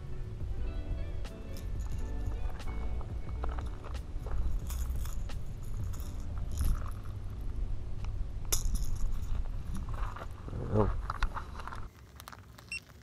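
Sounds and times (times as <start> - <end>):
wind rumbling on microphone: 0.0 - 11.9
fishing gear clicking and clinking: 1.5 - 7.4, 8.5 - 10.3.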